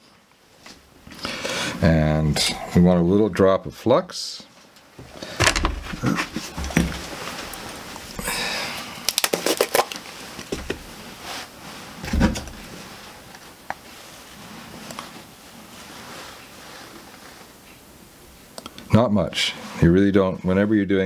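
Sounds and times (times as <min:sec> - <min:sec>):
objects handled on a workbench: 0:04.6 - 0:08.2.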